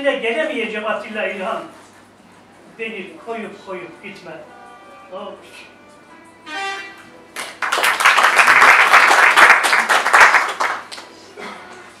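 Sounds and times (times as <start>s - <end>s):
audience applauding: 7.4s - 11.2s.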